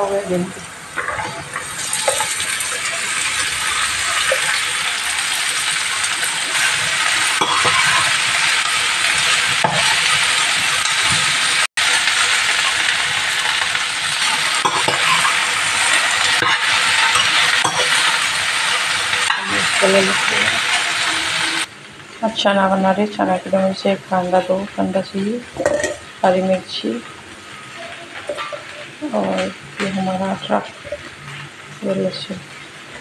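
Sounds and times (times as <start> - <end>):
okra sizzling in hot oil: 0.0 - 33.0
spatula scraping a pan: 6.5 - 8.5, 14.2 - 18.2.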